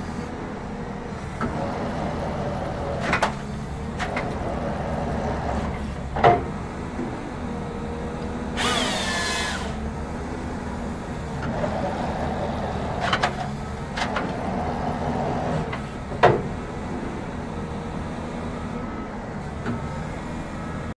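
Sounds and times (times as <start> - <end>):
excavator diesel engine and hydraulics: 0.0 - 20.9.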